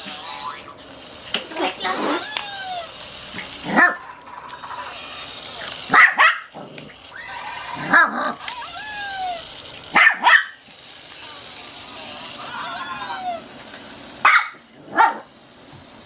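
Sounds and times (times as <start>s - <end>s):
small dog barking: 5.9s - 6.5s, 9.9s - 10.6s, 14.2s - 15.3s.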